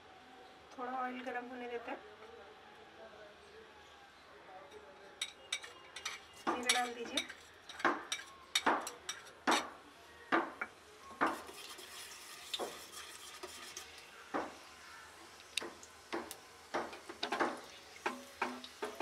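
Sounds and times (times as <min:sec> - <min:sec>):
metal spoon scraping a pan: 0:05.5 - 0:09.7, 0:11.2 - 0:14.9
seeds sizzling in hot oil: 0:10.7 - 0:19.0.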